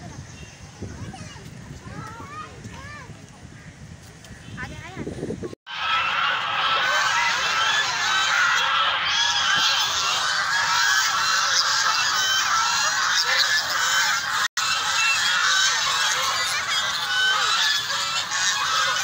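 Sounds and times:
geese honking: 5.7 - 19.0.

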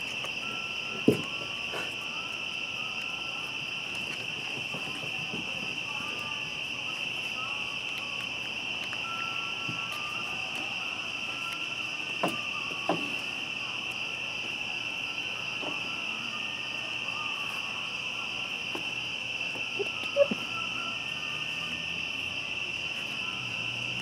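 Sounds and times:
crickets chirping: 0.0 - 24.0.

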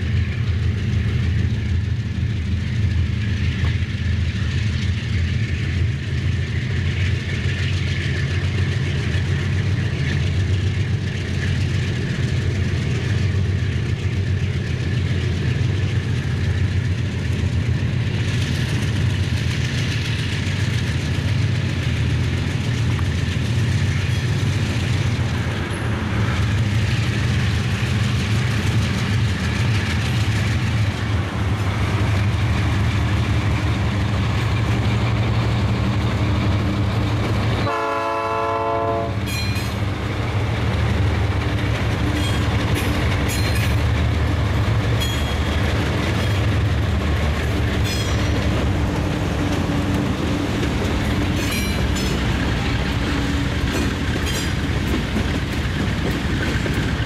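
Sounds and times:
train wheels clicking over rail joints: 0.0 - 38.0, 38.9 - 57.0
locomotive engines rumbling: 0.0 - 57.0
locomotive horn blast: 37.6 - 39.3.

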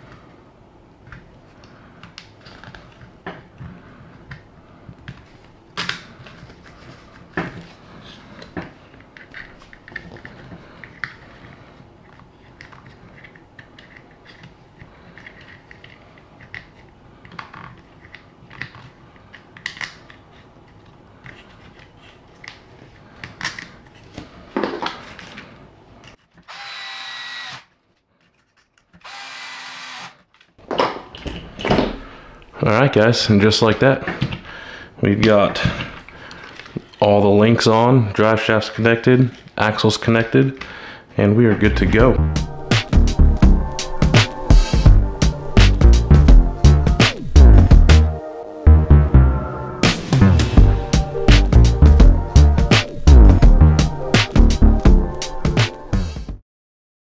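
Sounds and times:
cordless drill driving screws: 26.4 - 27.7, 29.0 - 30.2.

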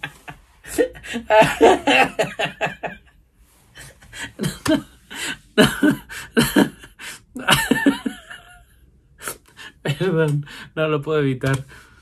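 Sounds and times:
man laughing hard: 0.0 - 3.0, 4.1 - 8.6.

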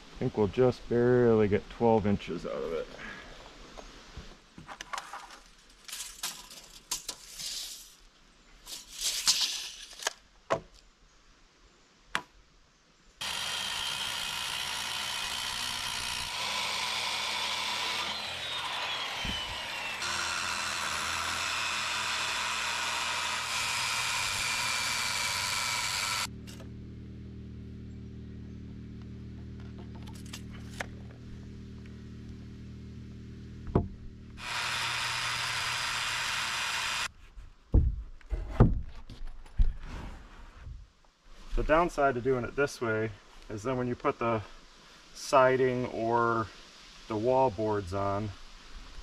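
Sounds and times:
circular saw cutting wood: 13.2 - 26.7, 34.4 - 37.1.

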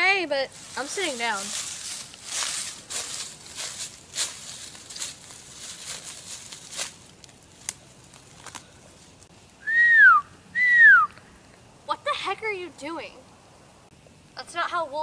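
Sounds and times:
footsteps crunching through dry leaves: 0.4 - 9.3
person wolf whistling: 9.6 - 11.2.

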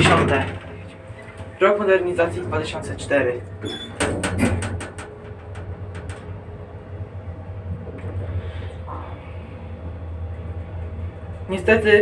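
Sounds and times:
lift hum and rumble: 0.0 - 12.0
lift clicks and knocks: 3.6 - 6.4.

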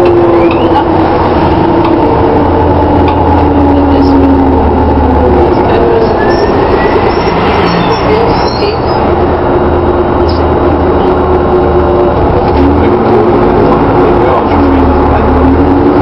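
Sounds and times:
bus diesel engine drone: 0.0 - 16.0.

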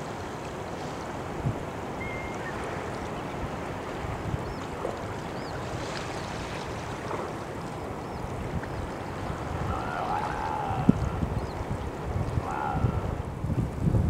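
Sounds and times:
water lapping at shore: 0.0 - 14.0
wind noise on microphone: 0.9 - 7.2, 8.0 - 14.0
faint high chirps: 2.0 - 2.6.

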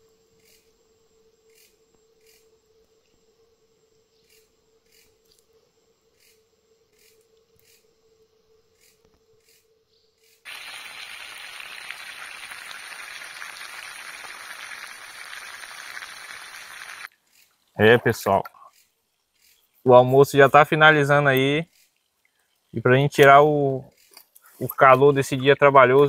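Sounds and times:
fish frying in hot oil: 10.5 - 17.1.

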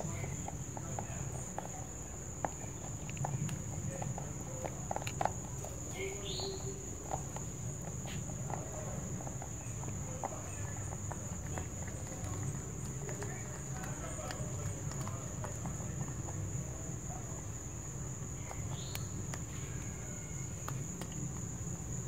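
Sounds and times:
rabbit crunching dry pellets: 0.0 - 22.0
high insect drone: 18.2 - 22.0.

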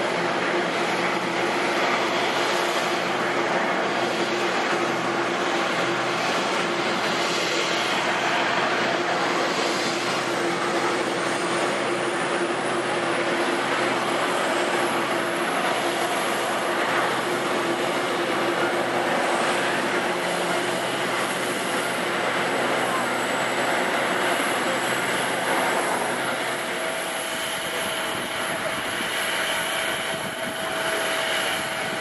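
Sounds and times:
jet airliner engines roaring: 0.0 - 32.0.

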